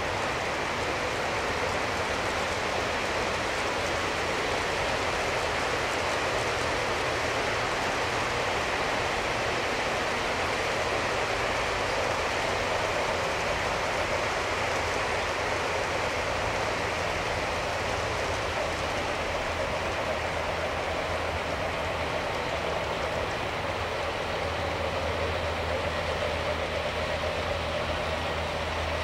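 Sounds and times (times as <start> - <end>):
model train wheels rumbling on rails: 0.0 - 29.0.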